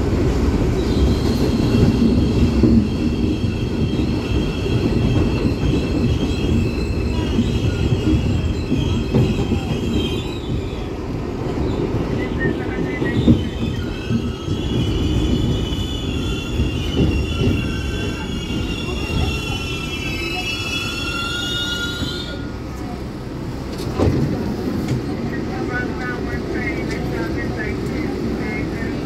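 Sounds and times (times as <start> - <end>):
subway train rumbling: 0.0 - 29.0
wheels and brakes squealing: 0.8 - 22.7.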